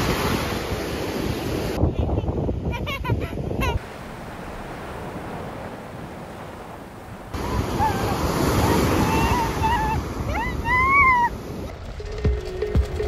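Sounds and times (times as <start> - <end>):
small waves washing on sand: 0.0 - 1.8, 3.8 - 11.7
surf breaking on beach: 0.0 - 1.8, 3.8 - 13.0.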